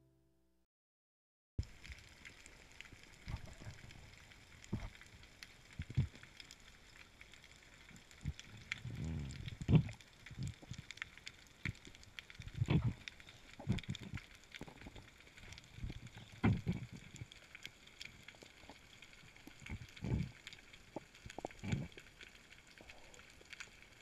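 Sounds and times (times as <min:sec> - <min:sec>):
underwater clicks and crackle: 0:01.6 - 0:24.0
low underwater burble: 0:08.0 - 0:10.9, 0:11.6 - 0:22.1
low underwater knocks and thuds: 0:15.9 - 0:16.9.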